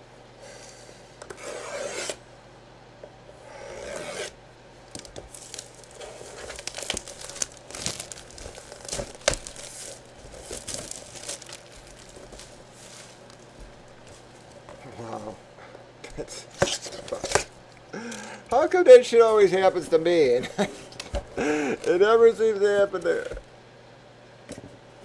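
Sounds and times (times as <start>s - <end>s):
plastic wrap tearing: 4.9s - 14.1s
plastic crinkling and rustling: 4.9s - 14.8s.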